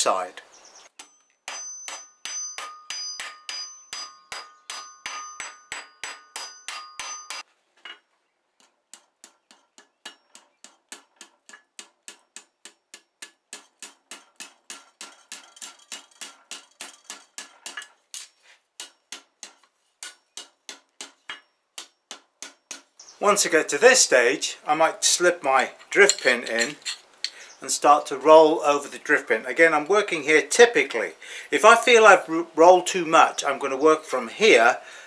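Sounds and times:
hammer blows on anvil: 0:01.0 - 0:07.4
hammer ringing on steel swage: 0:01.0 - 0:07.4.

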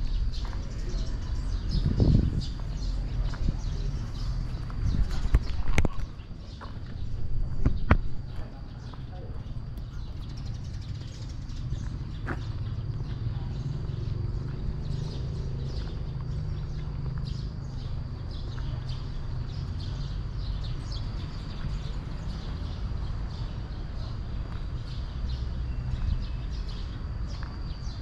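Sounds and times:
footsteps on concrete: 0:00.0 - 0:17.5.

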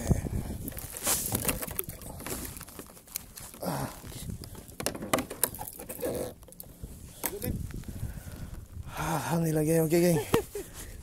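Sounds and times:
knocks and taps on plastic kayak: 0:04.5 - 0:05.6.

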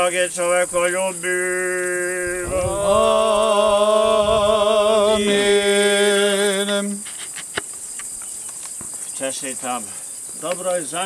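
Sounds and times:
men chanting: 0:00.0 - 0:07.1
insects chirping: 0:00.0 - 0:11.0.

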